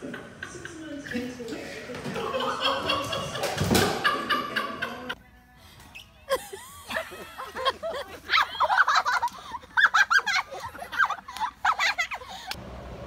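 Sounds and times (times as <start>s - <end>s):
person cackling laughter: 6.3s - 12.6s.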